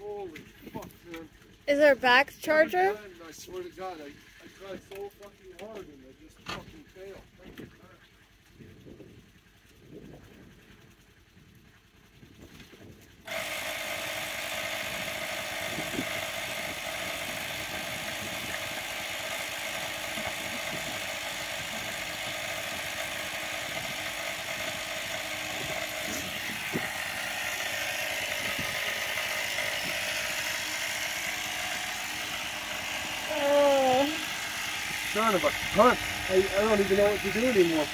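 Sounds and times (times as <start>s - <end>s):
air compressor humming: 13.2s - 37.9s.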